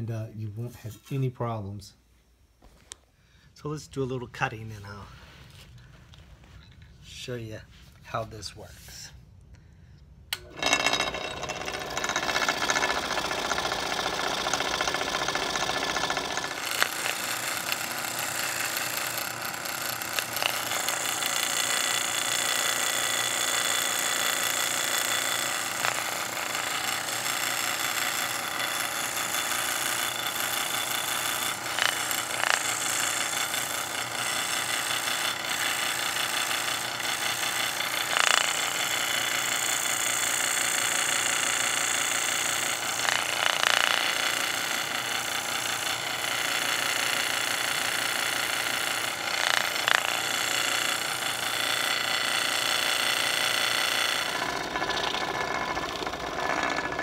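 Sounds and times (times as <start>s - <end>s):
scroll saw cutting wood: 10.3s - 57.0s.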